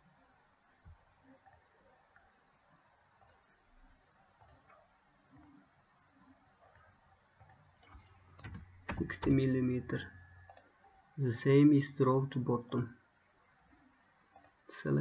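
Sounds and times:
faint computer mouse clicks: 1.4s - 2.3s, 3.2s - 3.4s, 4.4s - 5.6s, 6.6s - 9.1s, 14.3s - 14.6s.

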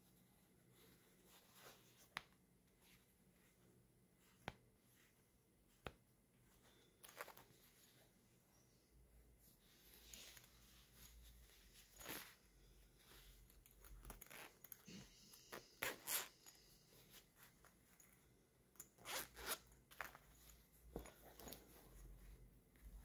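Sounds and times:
zipper pulled open and closed: 11.8s - 12.4s, 13.6s - 16.5s, 18.8s - 20.5s.

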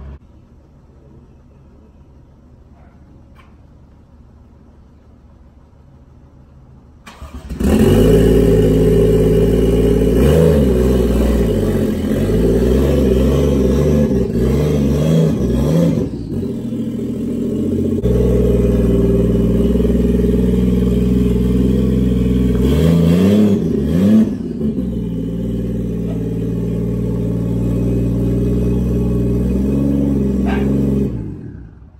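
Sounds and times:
car engine revving: 7.1s - 31.9s.

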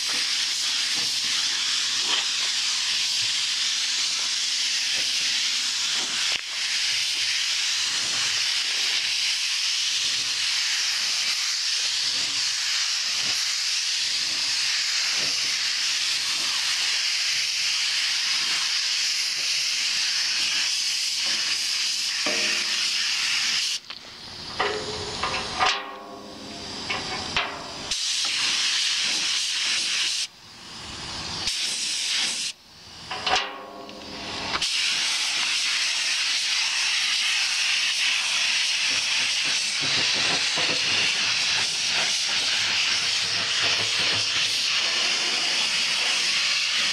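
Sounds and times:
paint spray gun hissing: 0.0s - 46.9s.

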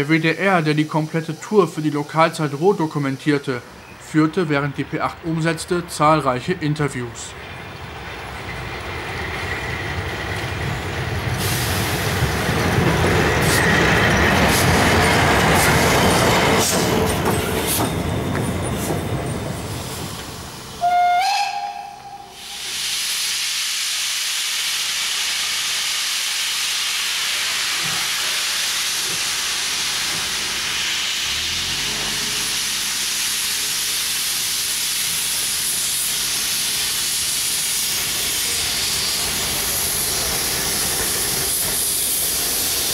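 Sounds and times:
steam hissing: 0.0s - 4.0s, 11.3s - 17.9s, 19.6s - 42.9s
steam locomotive rumbling: 0.0s - 42.9s
locomotive whistle: 20.8s - 22.6s.

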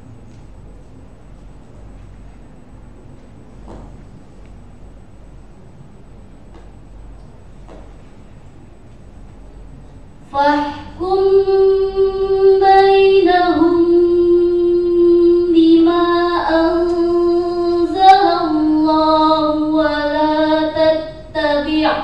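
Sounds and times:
girl chanting recitation: 10.3s - 22.0s.

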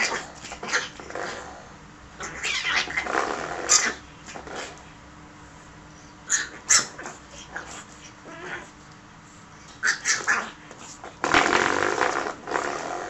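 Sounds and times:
puppy growling: 0.0s - 4.8s, 6.3s - 8.8s, 9.7s - 13.0s.

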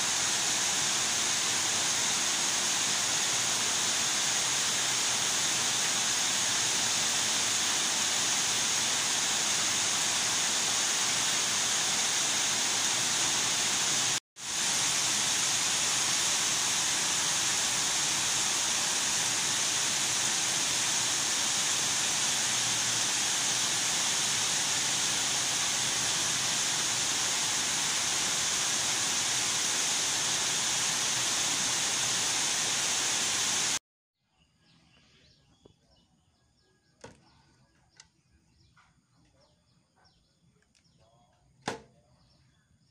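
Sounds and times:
heavy rain hissing: 0.0s - 33.8s.

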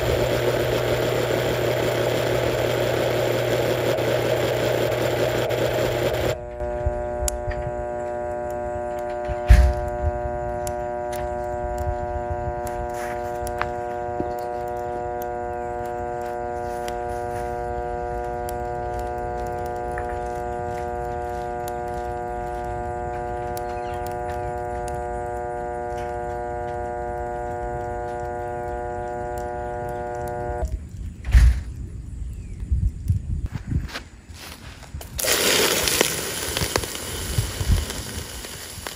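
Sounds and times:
blender motor humming: 0.0s - 30.7s, 35.2s - 38.9s.

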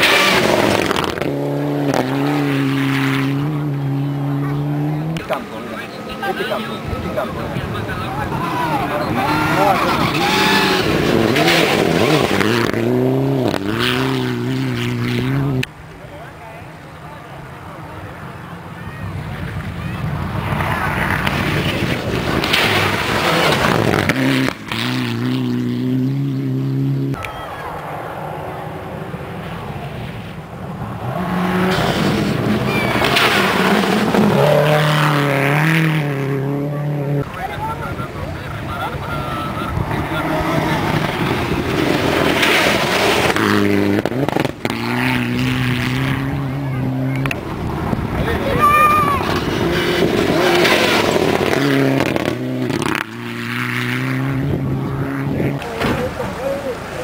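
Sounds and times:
rally car engine at full throttle: 0.0s - 57.0s
car splashing through water: 55.6s - 57.0s.

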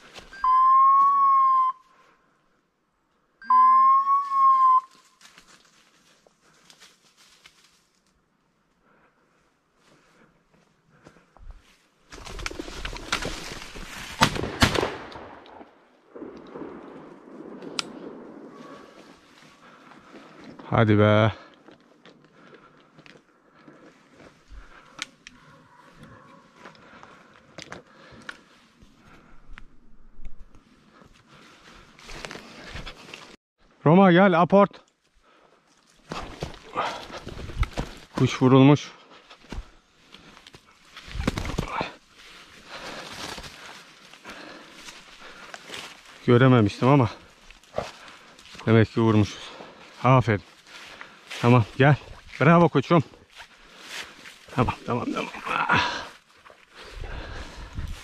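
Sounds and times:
long high whistle tones: 0.3s - 2.0s, 3.4s - 5.2s
brush rustling: 4.9s - 8.2s, 11.0s - 14.4s, 30.4s - 33.4s, 39.1s - 55.4s.

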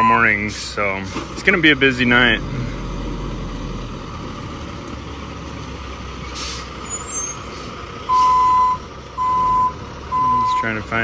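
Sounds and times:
diesel truck engine idling: 0.0s - 11.0s
air brakes hissing: 0.5s - 1.3s, 6.3s - 8.4s.

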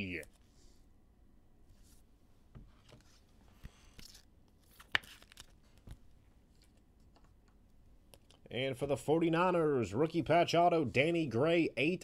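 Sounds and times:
rustling of plastic card sleeves: 2.7s - 7.4s.

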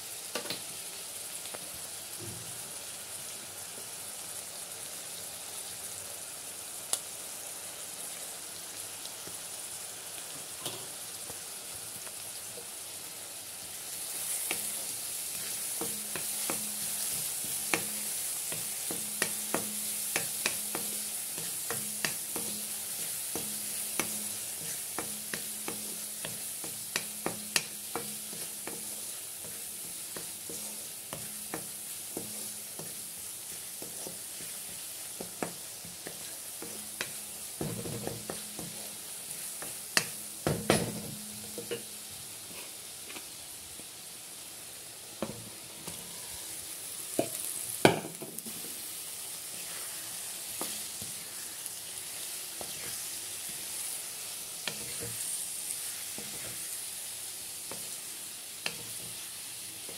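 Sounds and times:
vegetables sizzling in oil: 0.0s - 59.9s
spatula scraping a pan: 14.2s - 40.2s, 49.4s - 51.6s, 52.6s - 53.8s, 54.6s - 56.7s.

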